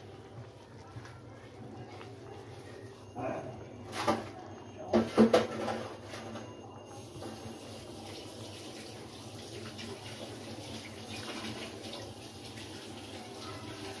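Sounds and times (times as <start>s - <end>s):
gravy simmering with bubbling hiss: 5.6s - 14.0s.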